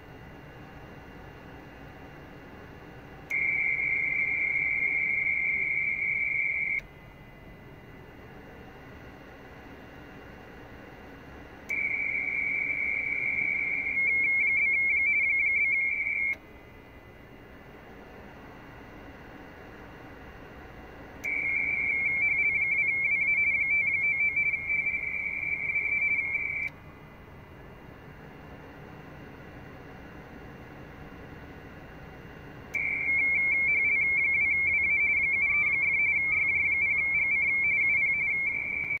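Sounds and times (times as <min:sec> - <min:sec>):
warbling radio data tone: 0:03.3 - 0:06.8, 0:11.8 - 0:16.4, 0:21.3 - 0:26.7, 0:32.8 - 0:39.0
receiver hiss: 0:03.3 - 0:06.9, 0:21.2 - 0:26.8.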